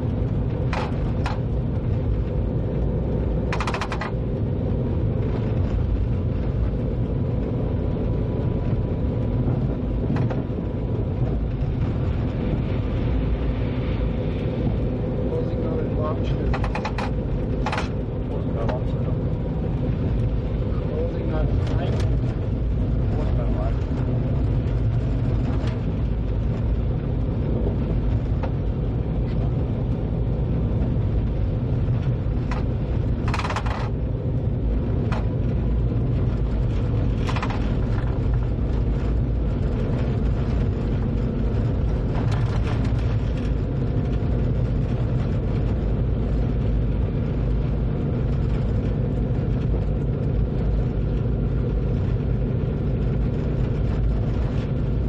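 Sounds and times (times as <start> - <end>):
train rumbling on track: 0.0 - 55.0
sharp clicks and knocks: 0.7 - 1.4, 3.5 - 4.2, 16.4 - 18.0, 32.4 - 34.0, 37.2 - 38.1.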